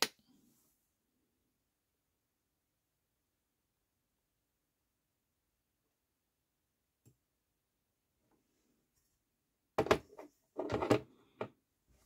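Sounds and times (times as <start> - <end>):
objects knocking and clattering: 9.8 - 11.6.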